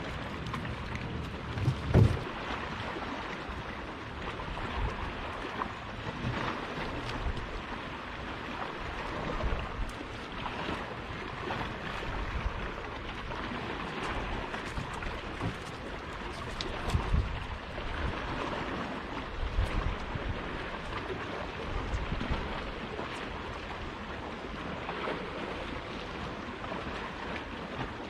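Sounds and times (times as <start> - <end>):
wind buffeting microphone: 0.0 - 5.5, 8.8 - 23.0
small waves lapping against boat: 0.0 - 28.0.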